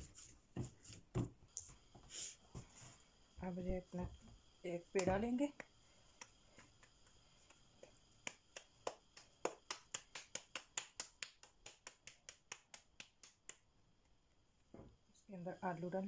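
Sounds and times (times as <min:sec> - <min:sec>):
hands slapping dough: 0:00.0 - 0:01.7, 0:05.0 - 0:13.8.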